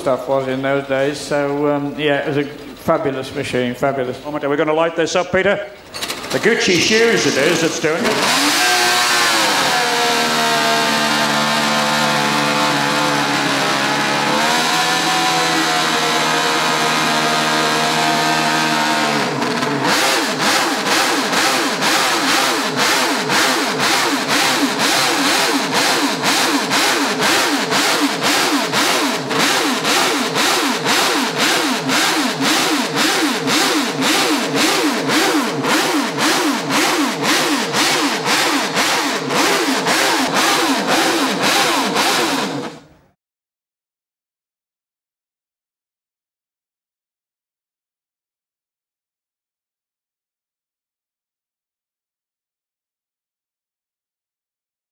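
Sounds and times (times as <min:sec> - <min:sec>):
racing engine revving: 0:06.0 - 0:42.9.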